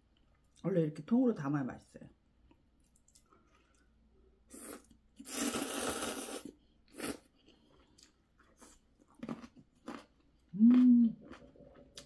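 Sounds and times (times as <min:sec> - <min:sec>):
person slurping noodles: 0:04.5 - 0:07.3.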